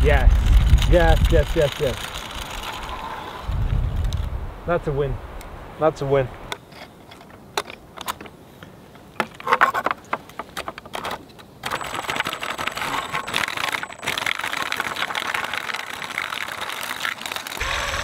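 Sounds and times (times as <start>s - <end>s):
motor driving chain rattle: 0.3s - 3.1s, 11.6s - 18.0s
metal chain clicking and clinking: 11.6s - 14.5s.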